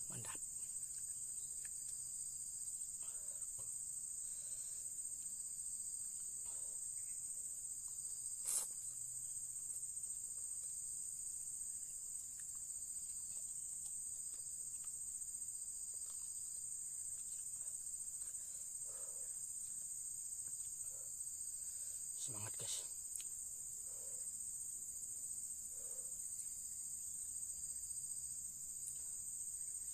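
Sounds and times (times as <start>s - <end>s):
insects trilling: 0.0s - 29.9s
faint eating noises: 0.2s - 2.1s, 11.8s - 21.0s.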